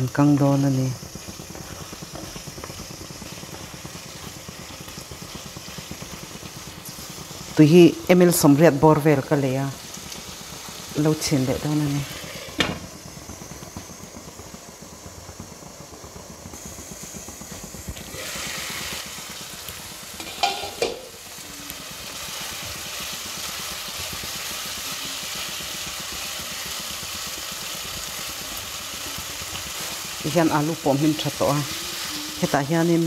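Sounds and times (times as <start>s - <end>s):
curry sizzling in a pan: 0.0s - 33.0s
wooden spatula stirring a pan: 0.2s - 7.4s
glass lid clattering: 20.2s - 21.1s.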